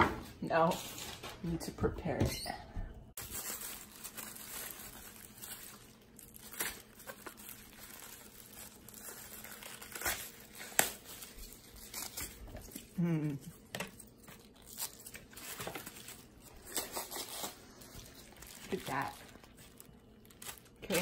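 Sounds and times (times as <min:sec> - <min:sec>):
lettuce leaves crinkling and tearing: 0:03.2 - 0:21.0
lettuce leaves snapping: 0:06.2 - 0:13.4, 0:14.2 - 0:21.0.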